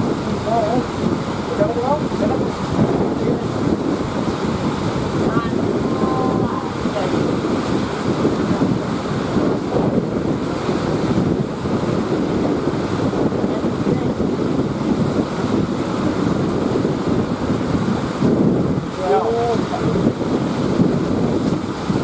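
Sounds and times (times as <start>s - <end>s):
heavy surf breaking: 0.0s - 22.0s
wind buffeting microphone: 0.0s - 22.0s.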